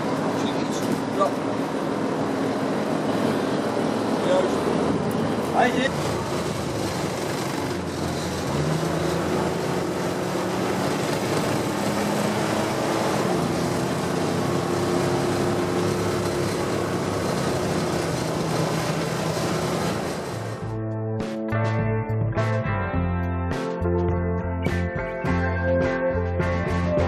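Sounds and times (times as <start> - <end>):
continuous rushing noise: 0.0 - 20.6
engine running: 0.0 - 20.9.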